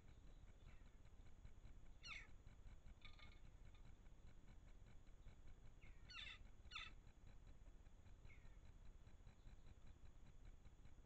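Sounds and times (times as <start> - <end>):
crow calls: 5.8 - 7.0.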